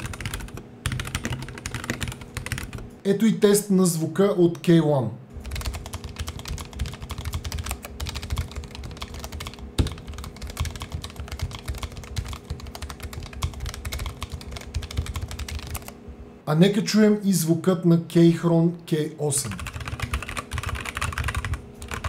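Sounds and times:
mechanical keyboard typing: 0.0 - 2.8, 5.4 - 16.0, 19.4 - 22.0.

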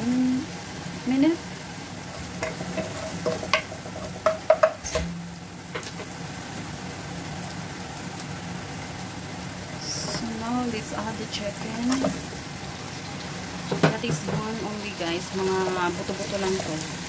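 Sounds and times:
onion and garlic sizzling in oil: 0.0 - 17.0
wooden spoon knocking against pan: 2.4 - 4.8, 13.7 - 14.5.

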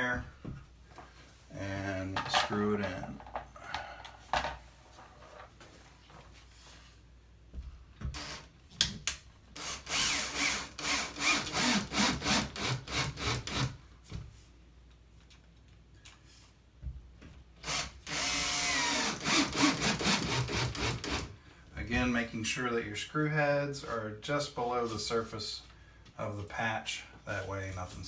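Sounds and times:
cordless drill driving screws: 8.1 - 8.5, 9.6 - 13.8, 17.6 - 21.3.

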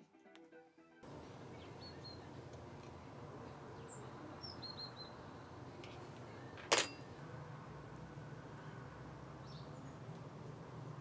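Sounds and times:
faint bird chirps: 1.5 - 2.4, 3.8 - 5.2.

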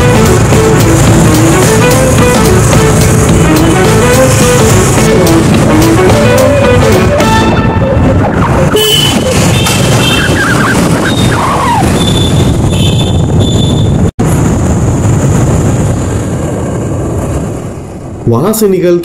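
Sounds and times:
traffic engines and tyres: 0.0 - 19.0
vehicle horns tooting: 6.2 - 14.1.

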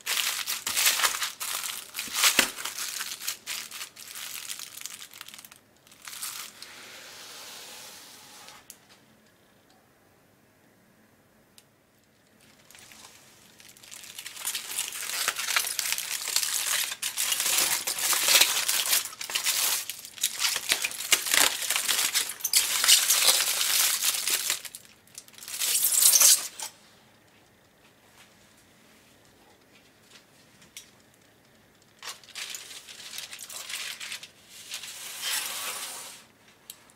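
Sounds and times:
aluminium foil crinkling: 0.0 - 6.6, 12.1 - 26.7, 30.0 - 35.4.

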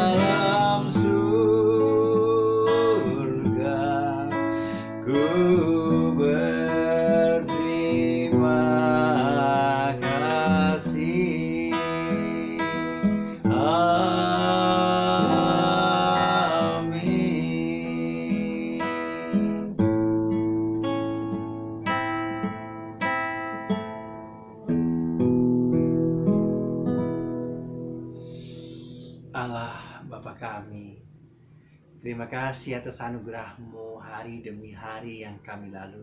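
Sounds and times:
man singing: 0.0 - 19.6
acoustic guitar: 0.0 - 36.0.

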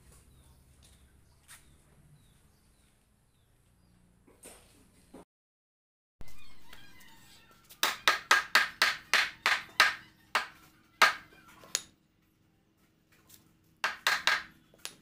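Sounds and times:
hammer striking wooden bed frame: 7.8 - 11.2, 13.8 - 14.6.

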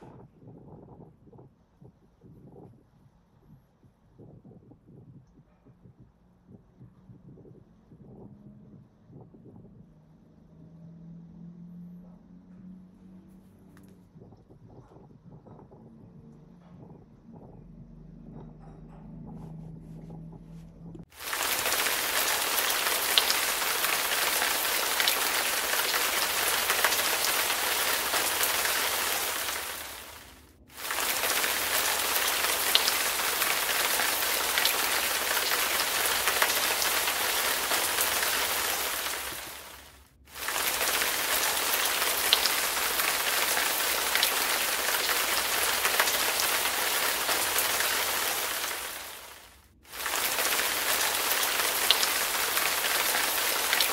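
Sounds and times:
heavy rain pouring: 21.1 - 53.9.

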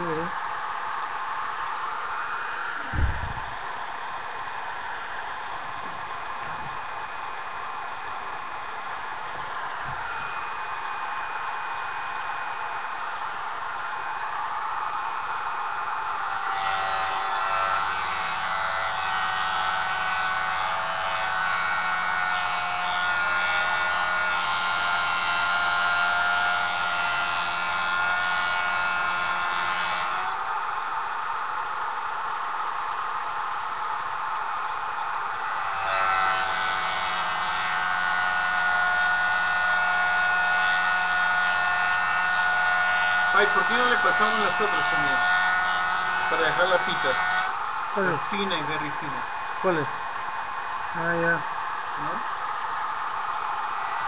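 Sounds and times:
blade grinding on abrasive disc: 35.6 - 48.9
sharpener motor whining: 46.2 - 48.9.

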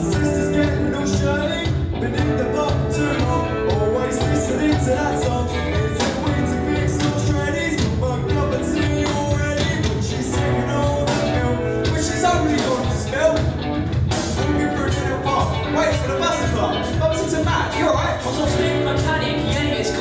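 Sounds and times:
boy singing lead vocal: 0.0 - 13.5, 14.4 - 20.0
drum kit steady beat: 0.0 - 20.0
electric guitars: 0.0 - 20.0.

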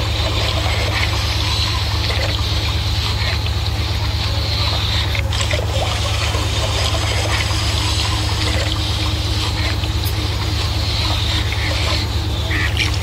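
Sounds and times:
boat engine droning: 0.0 - 13.0
water rushing along hull: 0.0 - 13.0.

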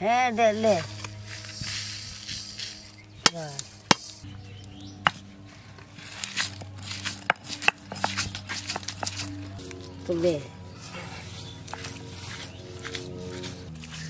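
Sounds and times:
seeds poured onto stone: 0.8 - 4.2, 6.0 - 9.8
stone roller crushing chillies: 5.0 - 9.8, 10.8 - 14.0.

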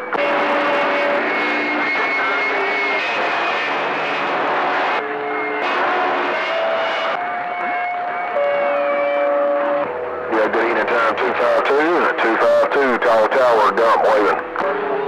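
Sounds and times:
whistling radio tones: 9.2 - 15.0
radio static hiss: 10.3 - 14.6.

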